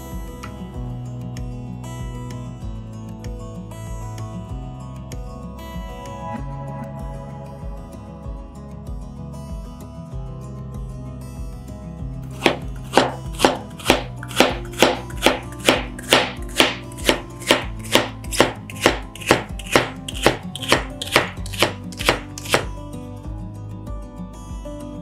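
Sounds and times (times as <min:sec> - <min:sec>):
knife chopping on cutting board: 0:12.3 - 0:22.7.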